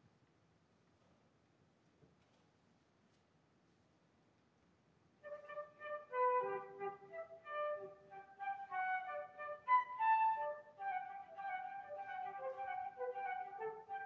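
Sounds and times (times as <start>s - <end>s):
flute playing a melody: 5.2s - 14.0s.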